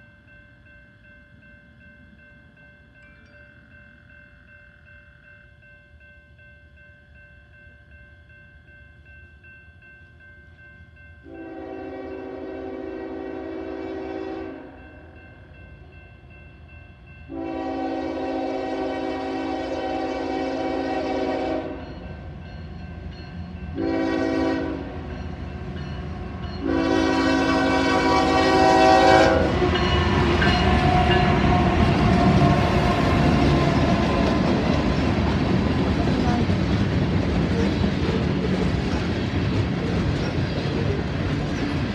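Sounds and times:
crossing bell ringing: 0.0s - 41.9s
train wheels on rails: 0.0s - 41.9s
locomotive air horn blasts: 11.3s - 14.8s, 17.3s - 21.8s, 23.8s - 25.0s, 26.6s - 29.9s
locomotive engine: 27.3s - 41.9s.

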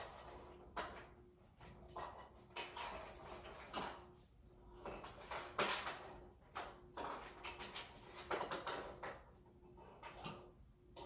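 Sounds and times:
rustles and scrapes of handling: 0.0s - 10.6s.

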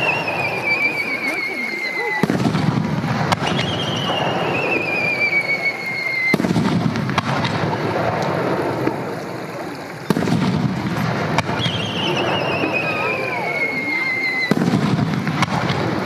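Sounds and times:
whistling firework shell: 0.0s - 7.5s, 11.4s - 15.9s
echoing rumble: 0.0s - 16.0s
firework bangs: 0.0s - 16.0s.

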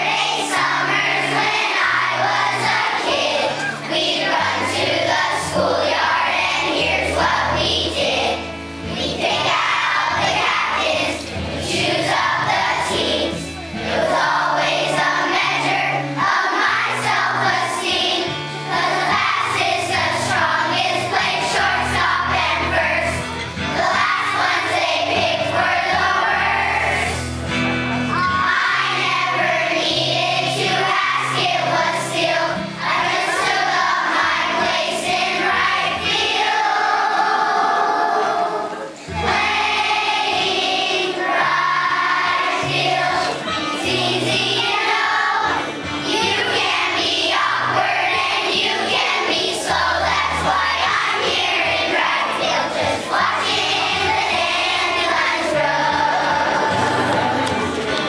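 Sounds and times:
children's choir singing: 0.0s - 58.0s
instrumental accompaniment with bass: 0.1s - 35.8s, 53.5s - 58.0s.

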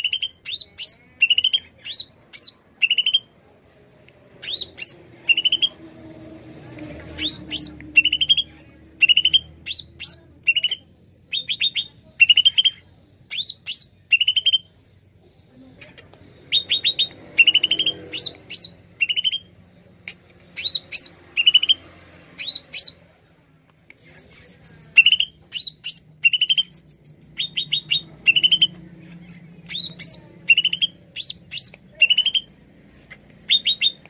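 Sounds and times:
bird chirping and whistling: 16.5s - 19.5s, 25.0s - 28.8s, 29.7s - 32.5s, 33.5s - 34.0s.

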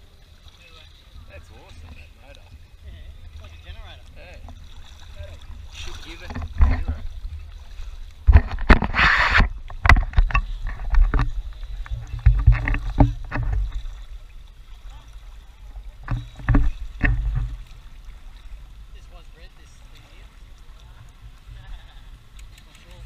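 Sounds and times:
paddle splashing and dripping: 0.0s - 23.0s
knocks and thumps: 6.2s - 7.4s, 8.2s - 13.9s, 16.0s - 17.7s.

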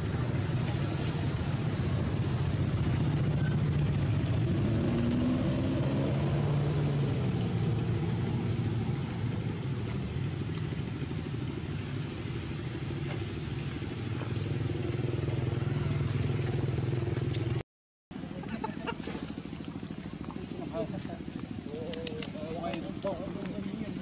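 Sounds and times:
high hiss: 0.0s - 17.4s
motor engine humming: 0.0s - 17.6s, 18.2s - 24.0s.

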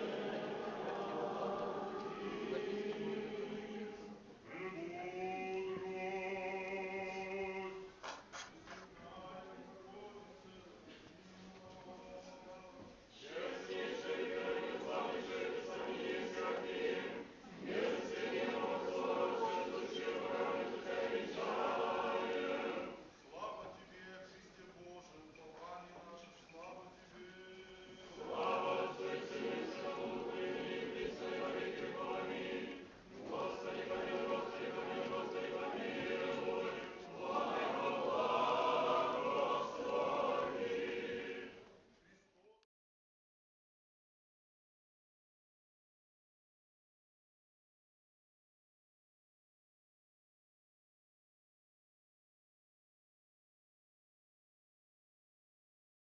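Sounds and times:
choir singing liturgical chant: 0.0s - 7.9s, 11.5s - 23.7s, 26.6s - 41.7s.

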